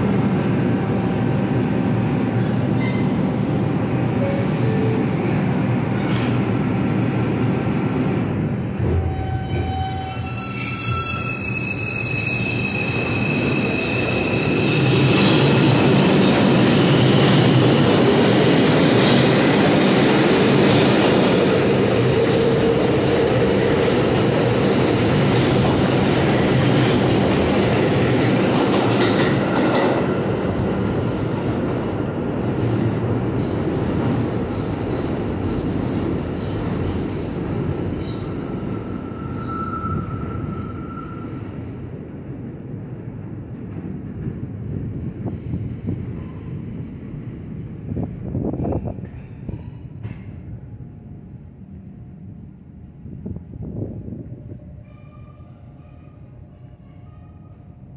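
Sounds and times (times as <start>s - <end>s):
subway cars rumbling and clattering: 0.0s - 57.9s
high wheel squeal: 8.9s - 14.7s, 34.5s - 41.8s.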